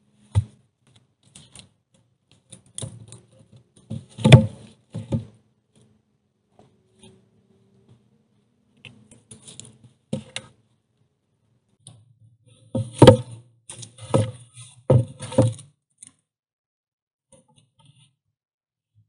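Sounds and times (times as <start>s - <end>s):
hollow wooden knocks of logs: 3.8s - 5.4s, 12.7s - 13.4s, 14.0s - 15.7s.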